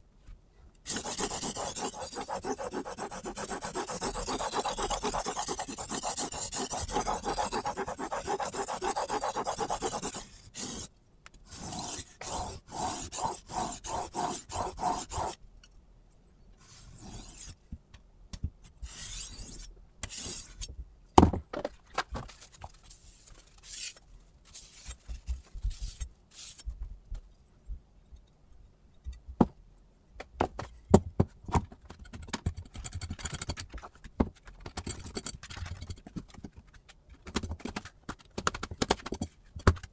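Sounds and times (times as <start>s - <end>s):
knife scraping sharpening stone: 0.9s - 10.9s, 11.5s - 15.4s, 16.8s - 17.6s, 18.9s - 20.7s
sharp knocks and clicks: 30.2s - 39.9s.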